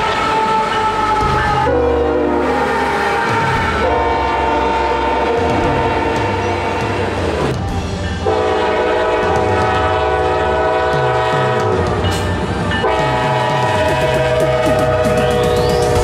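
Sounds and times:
locomotive air horn: 0:00.0 - 0:07.2, 0:08.2 - 0:12.0, 0:12.8 - 0:16.0
train wheels clicking on rails: 0:05.2 - 0:16.0.

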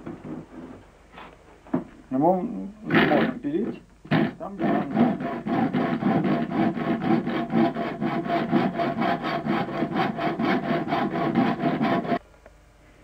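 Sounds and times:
hand saw cutting wood: 0:04.1 - 0:12.2.

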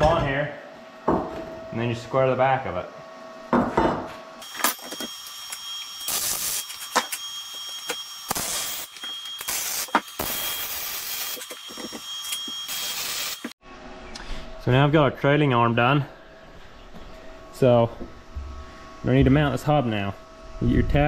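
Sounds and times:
welder hissing: 0:04.4 - 0:13.6
faint high whine: 0:04.4 - 0:21.0.

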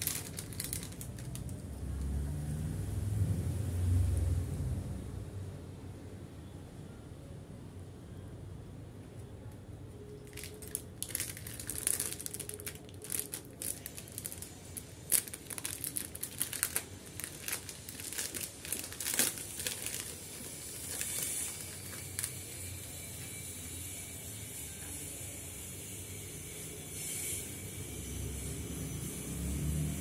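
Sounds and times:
plastic packaging crinkling: 0:00.0 - 0:02.1, 0:10.1 - 0:23.0.

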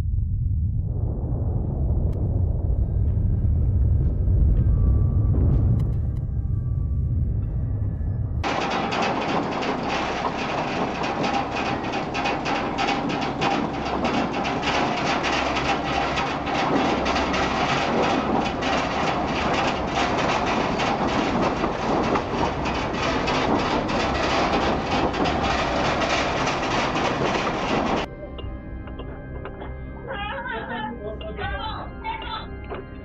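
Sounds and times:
low rumble: 0:00.0 - 0:33.0
house rattling in earthquake: 0:07.1 - 0:28.1.

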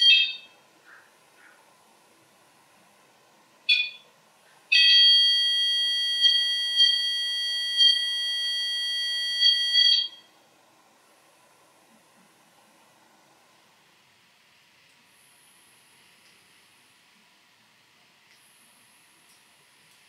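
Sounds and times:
high-pitched alarm tone: 0:04.7 - 0:10.3.

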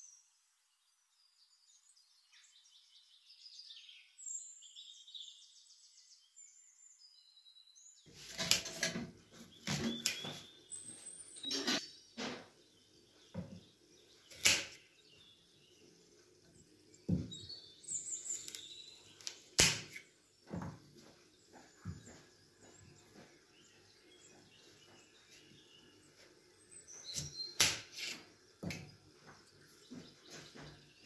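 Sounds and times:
knife cutting carrots: 0:08.1 - 0:10.5, 0:14.3 - 0:14.8, 0:27.1 - 0:28.9.

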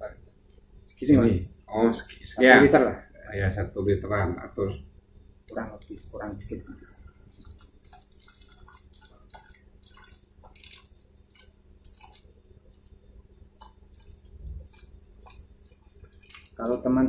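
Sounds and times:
small clicks and ticks: 0:05.5 - 0:16.9
water trickling into bottle: 0:05.5 - 0:16.9.

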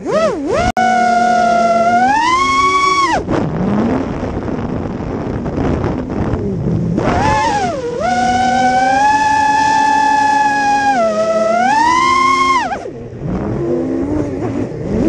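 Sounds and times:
drone motors whining: 0:00.0 - 0:03.4, 0:07.0 - 0:15.0
wind rush: 0:01.6 - 0:15.0.

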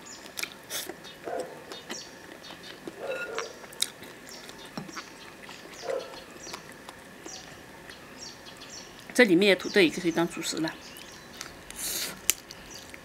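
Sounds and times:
chewing and sucking: 0:00.3 - 0:08.0, 0:10.9 - 0:13.0
loud slurps: 0:11.8 - 0:12.2.

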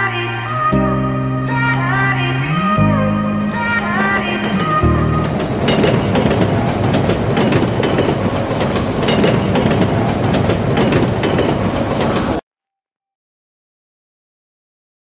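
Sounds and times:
music: 0:00.0 - 0:06.5
train rumble and rush: 0:03.2 - 0:12.4
wheels clacking over rail joints: 0:03.3 - 0:12.4.

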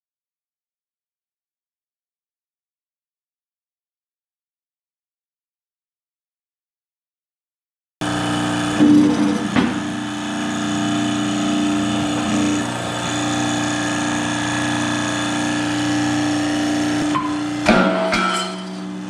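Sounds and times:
hydraulic press humming: 0:08.0 - 0:19.0
metal knock: 0:17.1 - 0:18.8.

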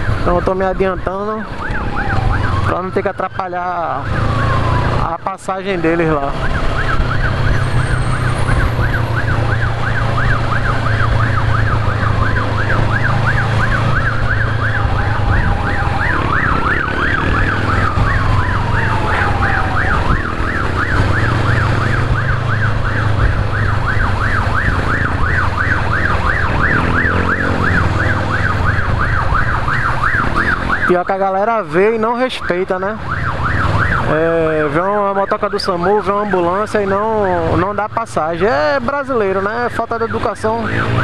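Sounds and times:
siren wailing: 0:00.0 - 0:41.0
siren yelping: 0:00.0 - 0:41.0
wind: 0:00.0 - 0:41.0
motorcycle engine drone: 0:06.1 - 0:30.9.

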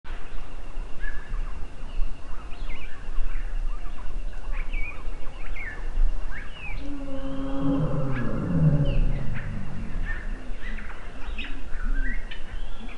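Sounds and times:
low droning tone: 0:06.2 - 0:12.1
low rumble: 0:06.6 - 0:11.6.

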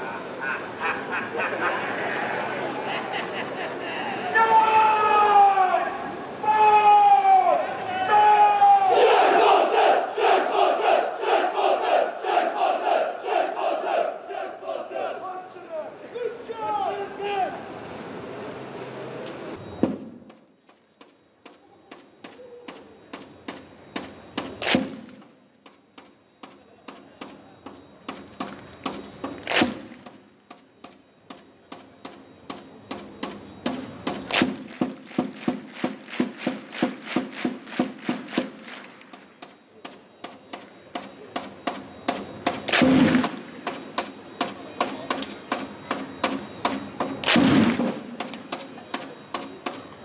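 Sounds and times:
crowd chanting: 0:08.7 - 0:15.7
crowd clapping in unison: 0:34.7 - 0:39.1.

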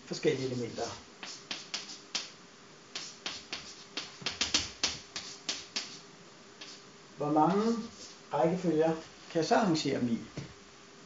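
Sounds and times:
chalk tapping on blackboard: 0:00.4 - 0:06.0, 0:06.6 - 0:06.8, 0:07.5 - 0:08.2.

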